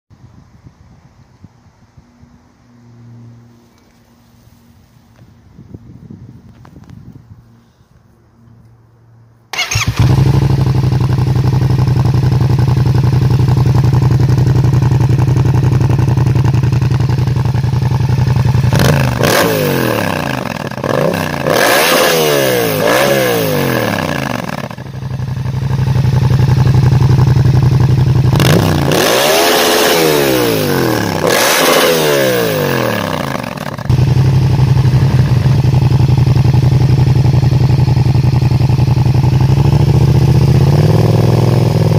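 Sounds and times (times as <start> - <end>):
motorcycle engine idling and revving: 9.5 - 41.9.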